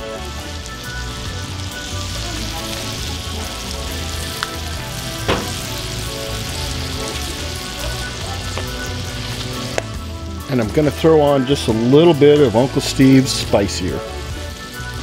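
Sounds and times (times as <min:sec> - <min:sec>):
burger patties sizzling on griddle: 0:00.0 - 0:15.0
short sharp tap: 0:05.3 - 0:05.7.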